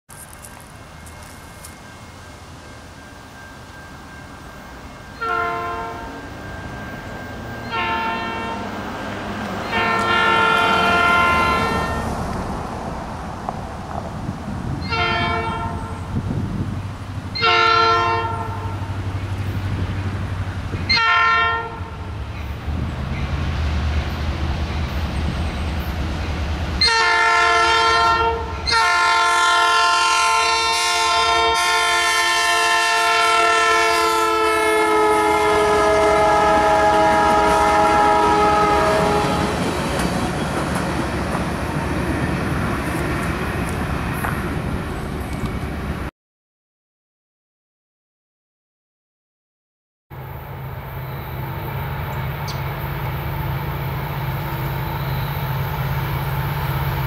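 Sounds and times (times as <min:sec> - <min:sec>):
train cars rolling: 0:00.1 - 0:17.5, 0:21.8 - 0:46.1
train air horn blasts: 0:05.2 - 0:06.7, 0:07.6 - 0:08.8, 0:09.6 - 0:12.2, 0:14.8 - 0:16.2, 0:17.3 - 0:19.1, 0:20.9 - 0:22.1, 0:26.8 - 0:39.7
locomotive engine rumble: 0:18.2 - 0:21.1.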